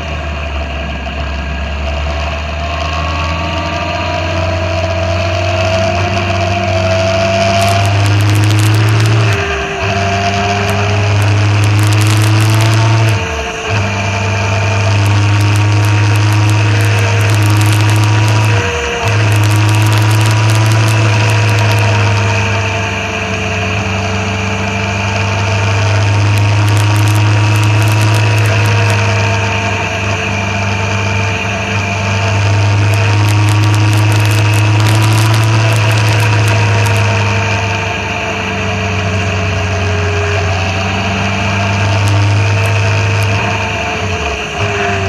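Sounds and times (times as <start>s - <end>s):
motorcycle engine cruising: 0.0s - 45.0s
road noise: 0.0s - 45.0s.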